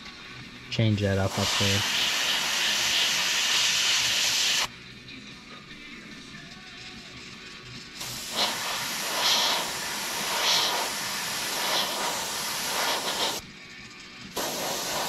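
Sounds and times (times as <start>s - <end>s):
airbrush hissing: 1.2s - 4.7s, 8.0s - 13.4s, 14.4s - 15.0s.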